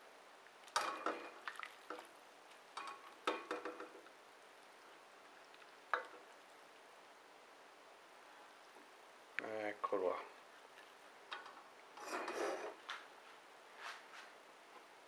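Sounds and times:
ladle knocking metal pot: 2.8 - 4.0.

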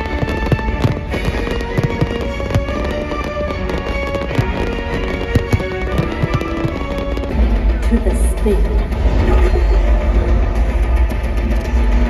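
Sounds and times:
fireworks bursting with bangs: 0.0 - 9.6
loud show music: 0.0 - 12.0.

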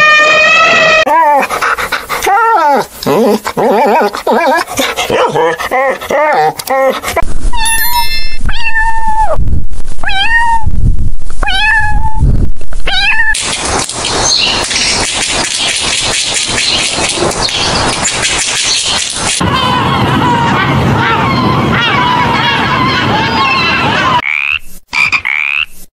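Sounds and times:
cat meowing: 7.6 - 9.4, 10.0 - 10.7, 11.4 - 12.2, 12.9 - 13.4
dense crackling noise: 12.1 - 19.4.

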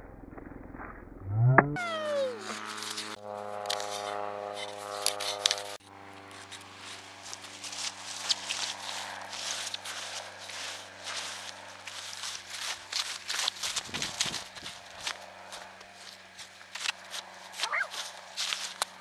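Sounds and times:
rising and falling pitch sweep: 0.8 - 3.2
sustained chords: 1.2 - 4.9.

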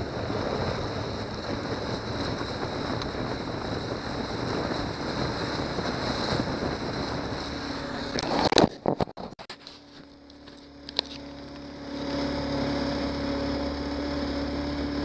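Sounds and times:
wind on microphone: 0.0 - 9.6
hull slapping through choppy water: 0.0 - 15.0
outboard motor running: 0.0 - 15.0.

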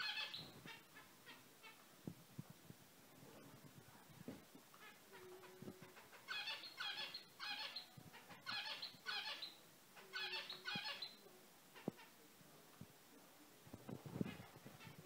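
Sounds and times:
finches calling: 4.8 - 11.2.

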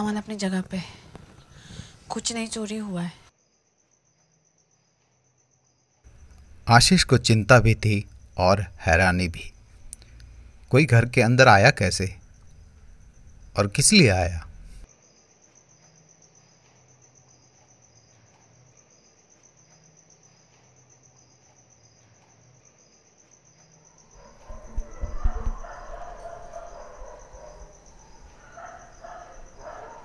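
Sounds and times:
crickets chirping: 0.0 - 30.0.

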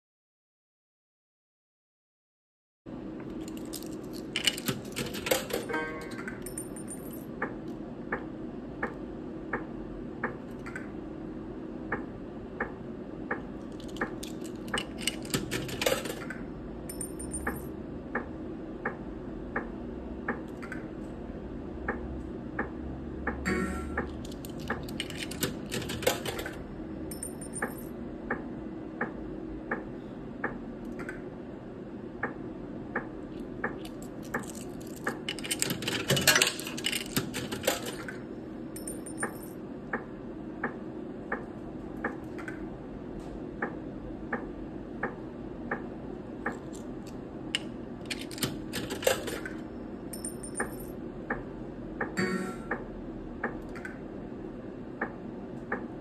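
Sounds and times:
slot machine ticks: 16.9 - 17.7, 23.3 - 26.5, 52.0 - 52.8.

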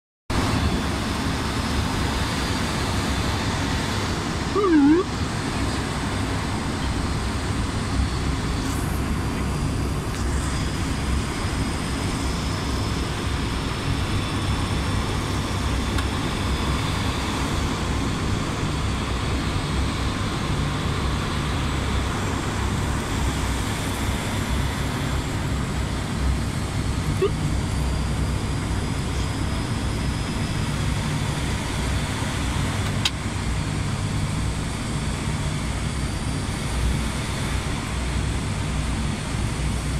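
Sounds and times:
turboprop engines droning: 0.3 - 39.9
warbling blip: 4.6 - 5.1.

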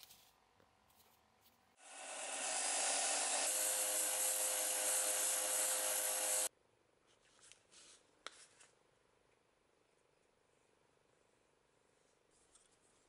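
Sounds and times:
sander grinding metal: 1.8 - 6.5
faint handling sounds: 7.0 - 8.8, 11.8 - 13.0.

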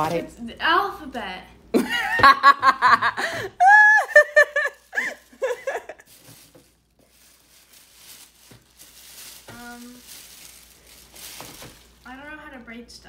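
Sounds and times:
plastic bags rustling: 0.0 - 0.5, 4.2 - 12.8
girl laughing and giggling: 1.8 - 6.1.

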